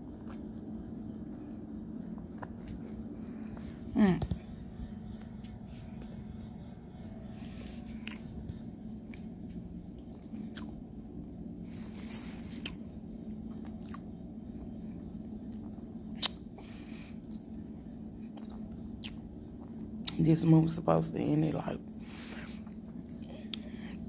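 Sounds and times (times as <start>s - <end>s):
steady low hum: 0.0s - 24.0s
person chewing crunchy food: 7.8s - 8.3s, 10.0s - 10.8s, 11.6s - 14.7s, 15.6s - 20.0s.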